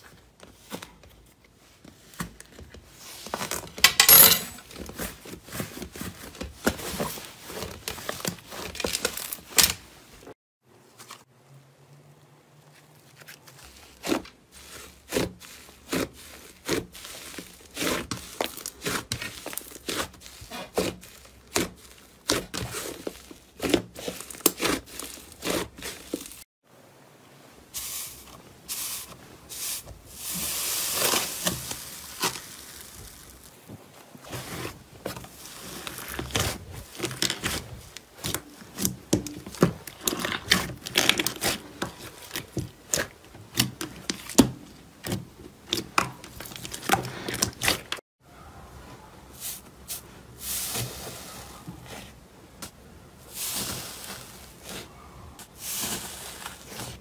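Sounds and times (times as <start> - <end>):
slime squelching: 12.6 - 26.4, 27.8 - 48.0, 49.4 - 57.0.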